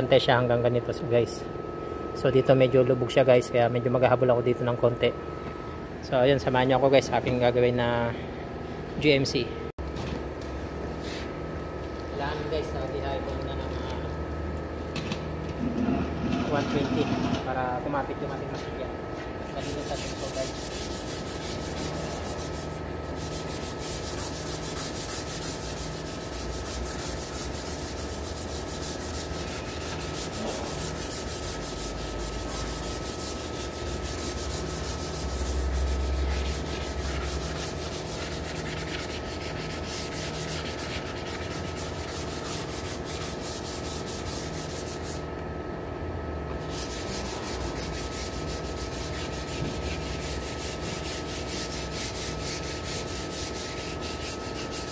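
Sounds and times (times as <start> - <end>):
sandpaper rubbing metal: 19.5 - 45.2, 46.6 - 54.9.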